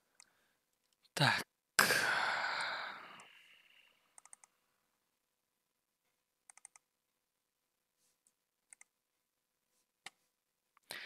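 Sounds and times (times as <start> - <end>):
computer mouse clicks: 4.1 - 4.6, 6.5 - 6.9, 8.2 - 8.9.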